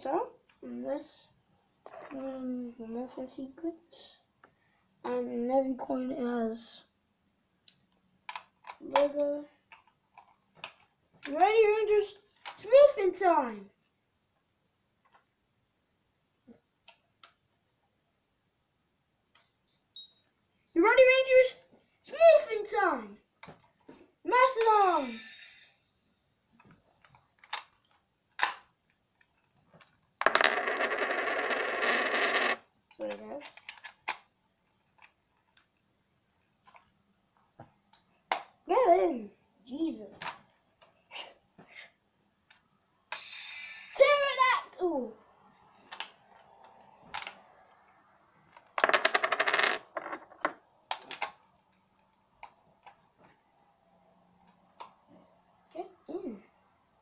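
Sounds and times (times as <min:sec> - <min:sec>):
rapid clatter of coins: 0:30.2 - 0:32.6, 0:48.8 - 0:50.5.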